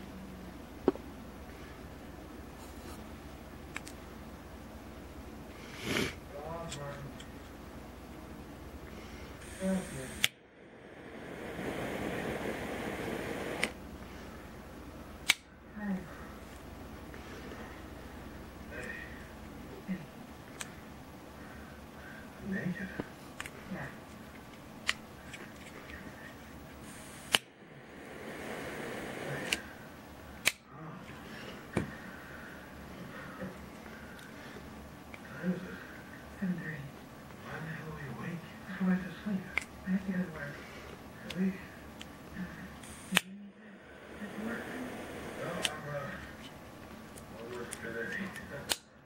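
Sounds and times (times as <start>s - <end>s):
faint gas hiss: 5.4s - 7.2s, 8.7s - 24.0s, 25.1s - 49.0s
gas jet hissing: 9.4s - 13.8s, 26.8s - 30.0s, 42.8s - 46.4s
lighter clicks: 10.1s - 10.4s, 27.1s - 27.5s, 29.4s - 29.6s
lighter igniter click: 29.3s - 29.6s.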